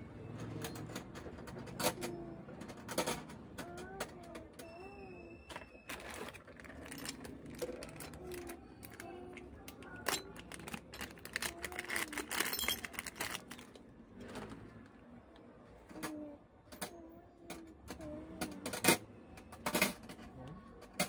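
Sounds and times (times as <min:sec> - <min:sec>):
plastic bag crinkling: 0:05.8 - 0:09.1, 0:09.9 - 0:13.9
metal nozzles clinking: 0:10.0 - 0:13.7.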